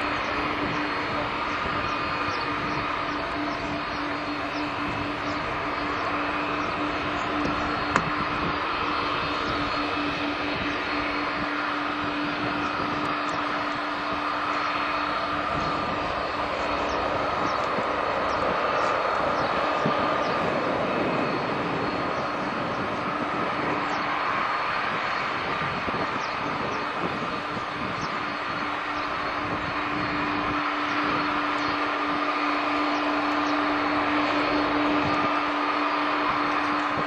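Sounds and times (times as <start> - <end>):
jet engines rushing: 0.0 - 37.0
low drone: 0.0 - 37.0.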